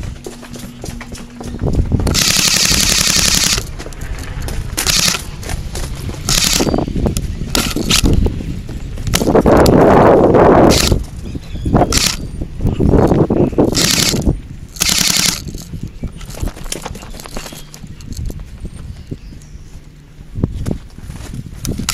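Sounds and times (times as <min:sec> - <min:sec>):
airsoft gun full-auto bursts: 0:02.1 - 0:03.7, 0:04.8 - 0:05.3, 0:06.3 - 0:06.8, 0:10.7 - 0:11.0, 0:11.9 - 0:12.2, 0:13.7 - 0:15.6.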